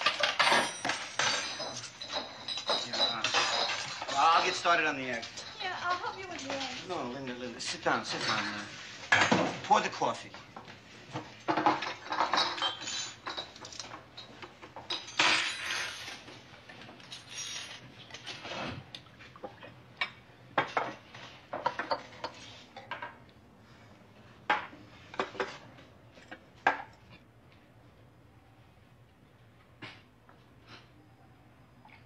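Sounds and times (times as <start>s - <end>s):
cups and spoons clinking: 0.0s - 6.6s, 7.7s - 9.4s, 11.4s - 16.2s.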